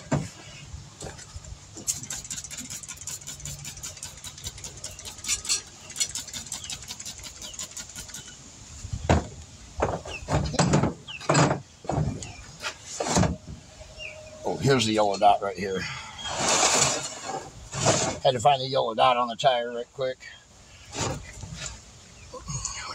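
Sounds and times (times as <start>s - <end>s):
tire thumping and rubbing: 0.0s - 13.6s, 16.3s - 18.3s, 20.9s - 21.8s
spray bottle spritzing: 1.8s - 8.4s.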